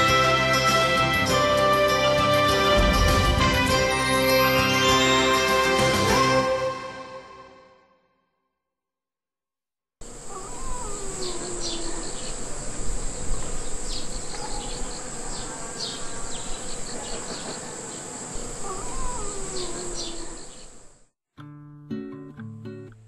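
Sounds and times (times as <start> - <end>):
honeybees buzzing: 10.0 - 20.9
high-pitched insect chorus: 10.0 - 21.0.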